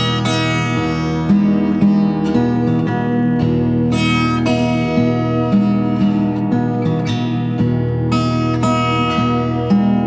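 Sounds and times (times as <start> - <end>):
acoustic guitar music: 0.0 - 10.0.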